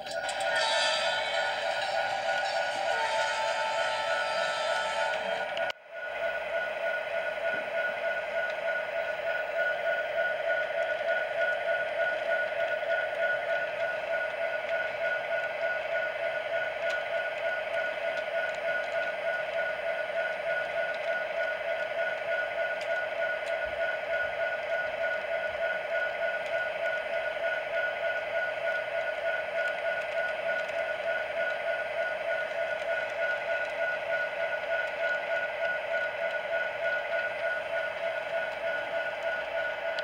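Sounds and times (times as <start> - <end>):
model train motor whine: 0.0 - 5.7
train cars rolling pulsing: 0.0 - 40.0.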